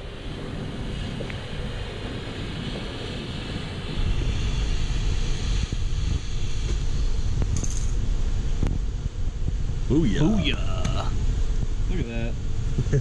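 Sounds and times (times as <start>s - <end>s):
welding arc on steel: 0.0s - 10.2s
low rumble: 0.0s - 13.0s.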